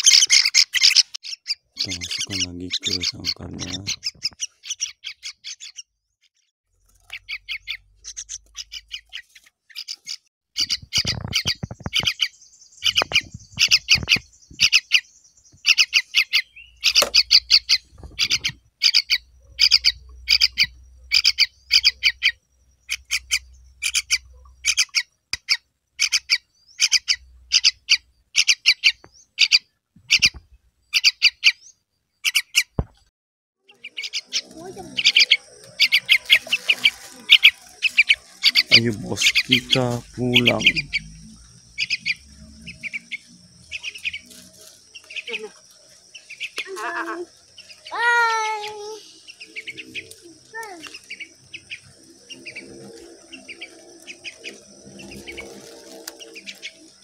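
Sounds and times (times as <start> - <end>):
chicks begging squawks: 0.0 - 5.9, 7.0 - 32.8, 33.6 - 57.0.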